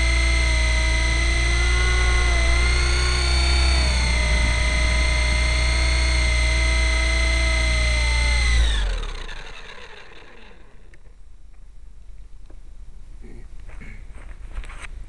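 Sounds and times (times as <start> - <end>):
rc helicopter motor whine: 0.0 - 11.2.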